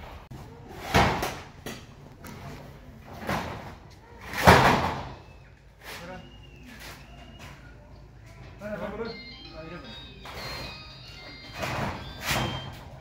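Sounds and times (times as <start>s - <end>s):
wooden doors banging shut: 3.2s - 5.2s, 11.5s - 13.0s.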